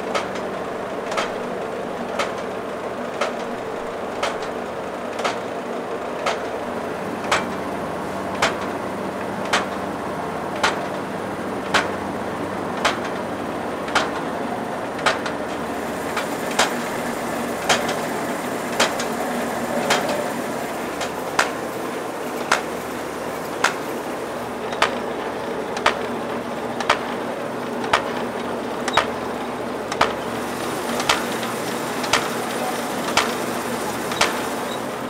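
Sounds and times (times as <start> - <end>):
machine humming: 0.0 - 35.0
sharp machine click: 1.1 - 1.4, 3.2 - 5.5, 7.2 - 7.7, 8.3 - 8.8, 9.4 - 9.8, 10.6 - 11.0, 11.6 - 12.0, 12.8 - 13.3, 13.9 - 14.3, 16.2 - 18.1, 18.7 - 20.4, 28.8 - 29.2, 34.1 - 34.9.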